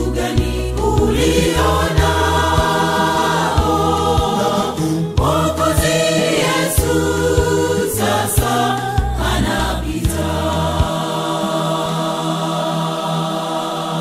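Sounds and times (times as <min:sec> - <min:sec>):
instrumental backing with beat: 0:00.0 - 0:11.1
gospel choir singing: 0:00.0 - 0:14.0.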